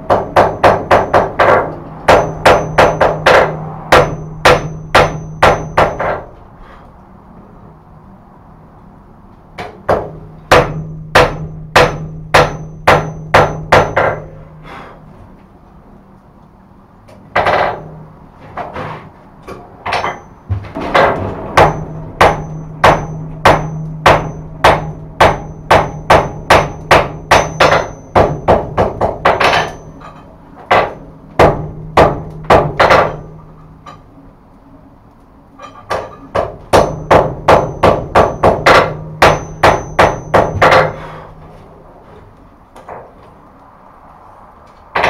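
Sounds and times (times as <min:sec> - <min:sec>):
hammer striking steel on anvil: 0:00.0 - 0:06.4, 0:09.6 - 0:14.4, 0:19.9 - 0:34.0, 0:35.6 - 0:41.3.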